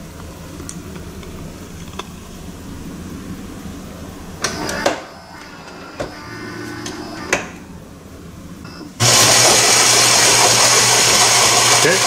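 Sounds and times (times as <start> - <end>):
short machine hum: 4.4 - 7.9
coffee grinder whirring: 9.0 - 12.0.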